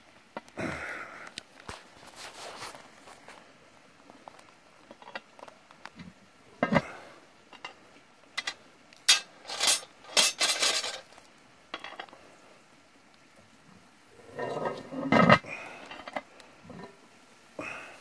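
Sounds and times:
metal scraping and clinking: 8.4s - 11.1s, 14.2s - 16.9s.

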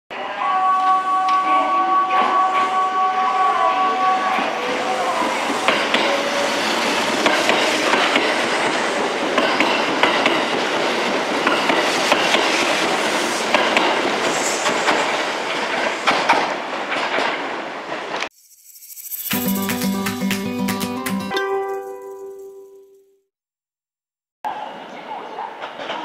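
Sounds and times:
train wheels clattering over rails: 5.6s - 18.2s.

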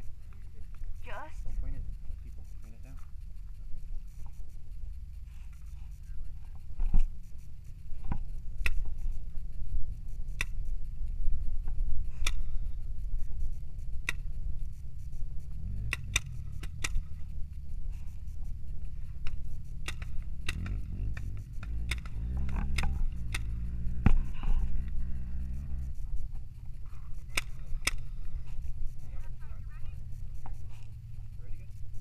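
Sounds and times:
wind rumble on microphone: 0.0s - 32.0s
paintball marker shots popping: 8.0s - 9.0s, 10.4s - 10.6s, 12.1s - 12.5s, 14.1s - 14.3s, 15.8s - 17.2s, 19.2s - 24.6s, 27.2s - 28.1s.

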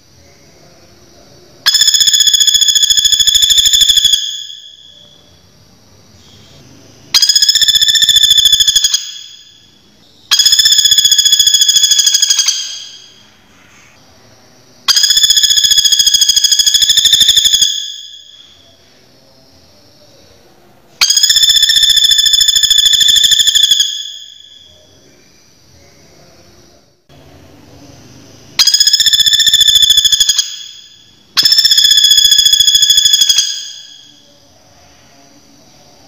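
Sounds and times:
woodpecker rattling trill: 1.7s - 5.1s, 7.2s - 9.6s, 10.3s - 13.2s, 14.9s - 18.4s, 21.0s - 24.7s, 28.6s - 34.1s.

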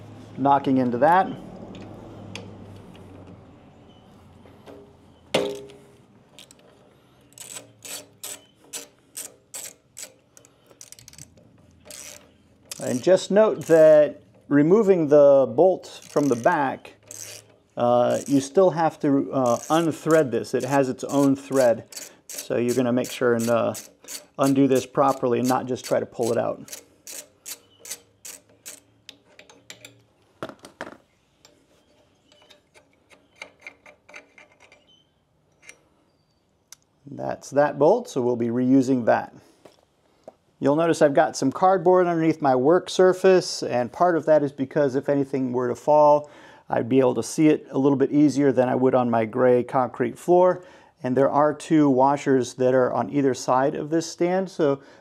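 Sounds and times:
metallic clank: 4.6s - 6.6s
ratchet wrench clicking: 7.3s - 14.0s, 15.9s - 18.6s, 19.4s - 30.0s.

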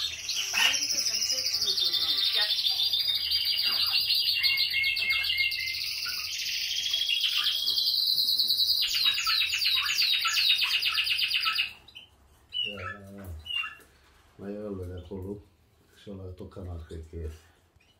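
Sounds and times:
canary trilling: 0.0s - 14.3s.

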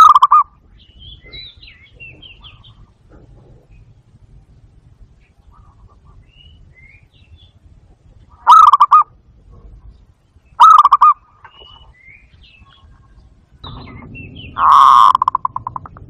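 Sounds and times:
dove cooing trills: 0.0s - 4.0s, 8.3s - 9.9s, 10.6s - 11.9s, 12.6s - 16.0s
low rush of noise: 0.0s - 16.0s.

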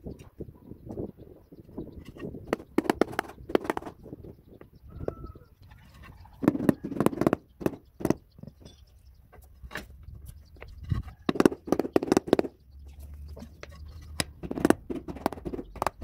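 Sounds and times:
mallet tapping floor tiles: 2.5s - 3.9s.

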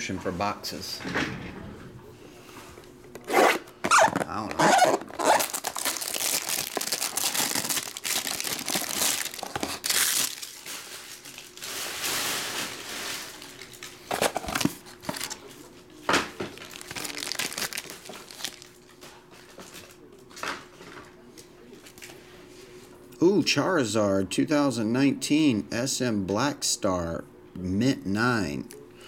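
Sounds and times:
plastic shrink-wrap crinkling and tearing: 3.9s - 15.4s, 16.5s - 18.9s.

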